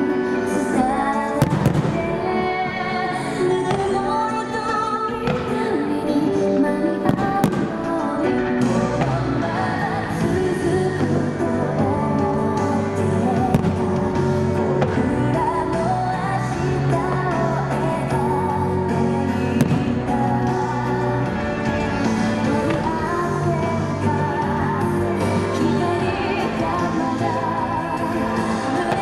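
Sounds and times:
pop song with singing: 0.0 - 29.0
firework bangs: 1.4 - 2.2.

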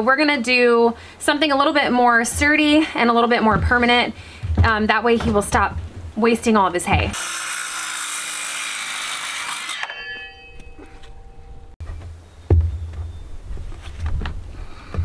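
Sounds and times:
circular saw cutting wood: 7.1 - 10.0
saw blade spinning down: 7.2 - 10.5.

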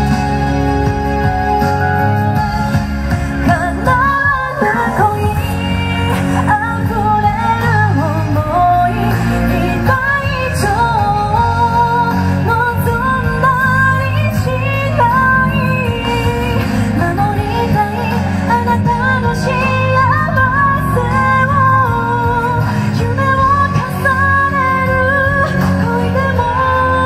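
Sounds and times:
instrumental accompaniment: 0.0 - 27.0
woman singing into microphone: 0.0 - 27.0.

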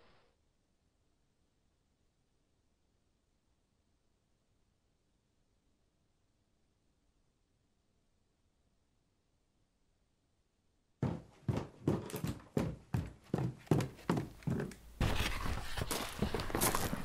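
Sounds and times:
footsteps on hard surface: 11.0 - 17.0.

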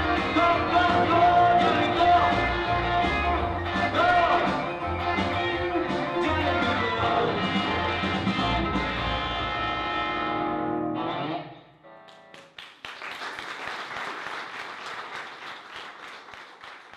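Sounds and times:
electric guitar through amplifier: 0.0 - 12.3
audience applause: 12.1 - 16.9.

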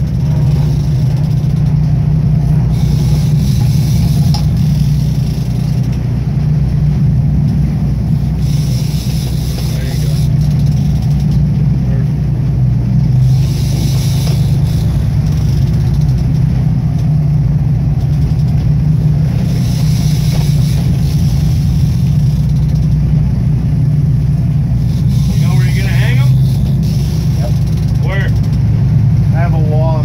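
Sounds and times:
boat engine droning: 0.0 - 30.0
sea noise: 0.0 - 30.0
wind: 0.0 - 30.0.

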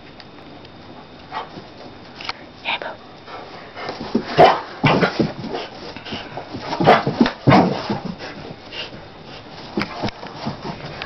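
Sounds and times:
dog scuffling on carpet: 3.2 - 11.0.

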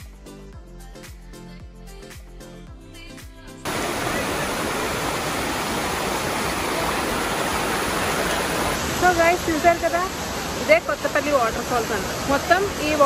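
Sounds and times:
background music: 0.0 - 4.7
waterfall rushing: 3.7 - 13.0.

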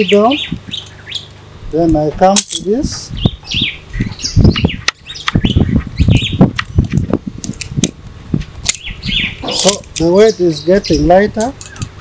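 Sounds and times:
birds chirping: 0.0 - 12.0
metal buckles clicking and rattling: 1.8 - 2.8, 8.6 - 10.3, 11.4 - 12.0.

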